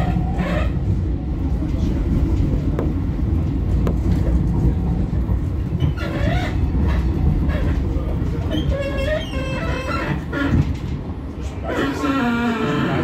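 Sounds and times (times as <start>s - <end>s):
tram running rumble: 0.0s - 13.0s
wheel squeal: 8.5s - 10.6s.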